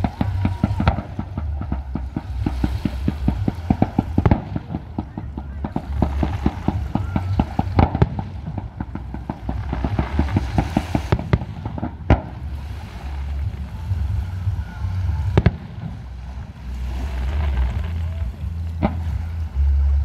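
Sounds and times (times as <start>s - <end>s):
loud fireworks shell bursts: 0.0s - 12.4s
fireworks crackling pops: 0.0s - 20.0s.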